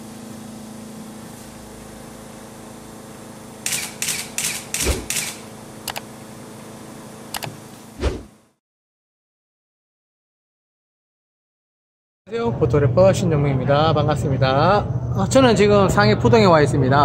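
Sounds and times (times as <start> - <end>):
steady low hum: 12.3 - 17.0.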